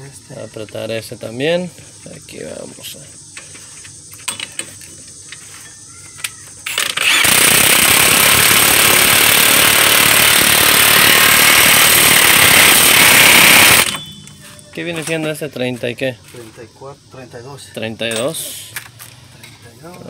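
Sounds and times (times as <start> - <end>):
impact wrench hammering: 6.7 - 14.6.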